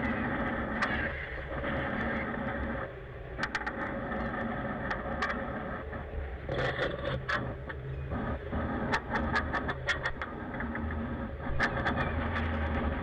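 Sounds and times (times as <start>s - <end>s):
low drone of boat engine: 0.0s - 13.0s
sharp clicks and knocks: 3.4s - 5.5s, 6.5s - 13.0s.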